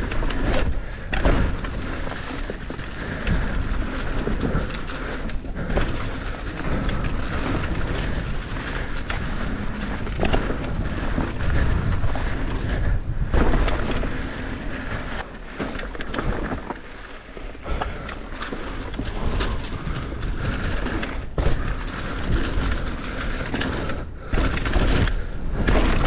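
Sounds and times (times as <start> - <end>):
wind rumbling on microphone: 0.0 - 15.4
bike chain and frame rattling: 0.0 - 26.0
tyres crunching over dirt: 0.0 - 26.0.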